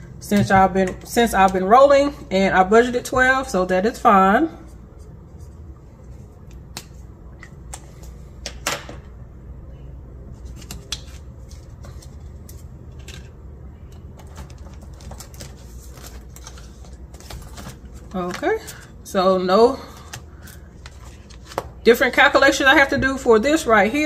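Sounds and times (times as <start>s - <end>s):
hands handling paper and binder: 14.1s - 18.9s, 20.0s - 21.8s.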